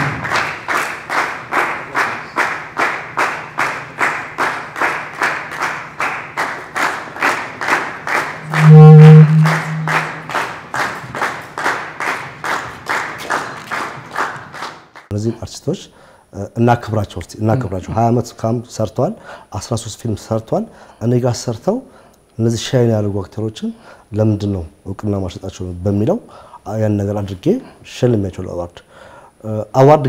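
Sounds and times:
audience clapping in rhythm: 0.0s - 15.1s
loud low hum: 8.4s - 10.7s.

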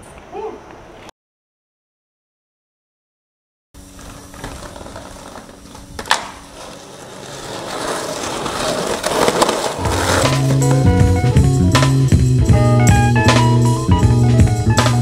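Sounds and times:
skateboard clack: 3.8s - 12.3s, 12.9s - 15.0s
skateboard wheels rolling on concrete: 3.8s - 15.0s.

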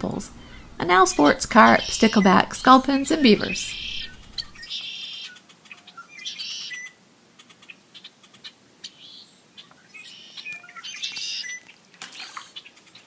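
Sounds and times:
small birds chirping: 0.1s - 13.0s
buzzy trilling bird call: 0.4s - 7.0s, 8.9s - 11.6s.

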